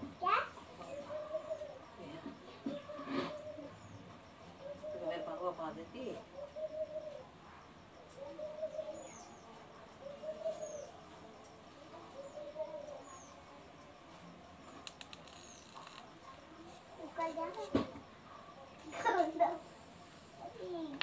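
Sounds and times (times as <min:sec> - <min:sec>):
dove cooing: 0:00.0 - 0:14.0
small bird chirping: 0:00.2 - 0:21.0.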